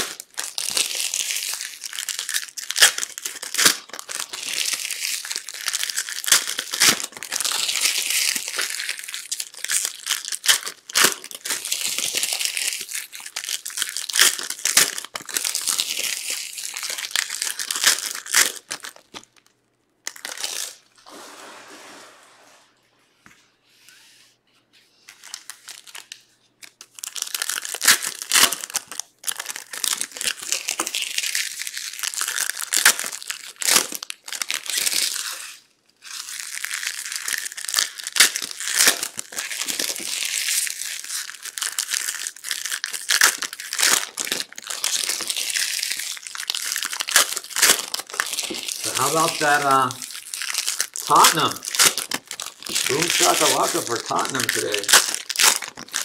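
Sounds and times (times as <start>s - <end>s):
wrappers crinkling and tearing: 0.0s - 21.0s, 25.0s - 56.0s
cards clicking and slapping: 51.1s - 56.0s.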